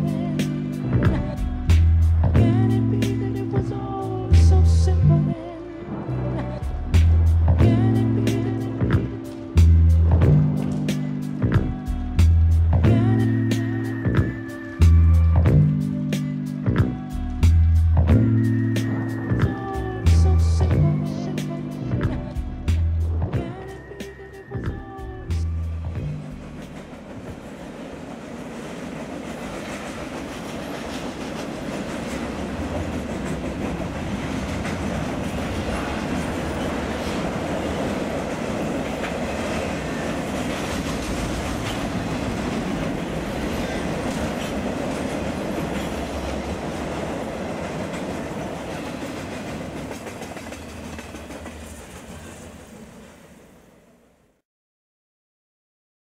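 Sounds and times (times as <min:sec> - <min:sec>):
freight train wheels clacking on rails: 0:25.8 - 0:52.8.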